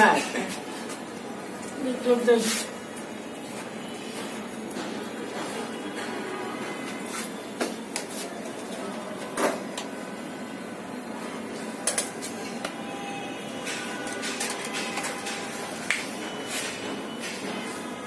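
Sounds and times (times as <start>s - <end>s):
steady background noise: 0.0s - 18.0s.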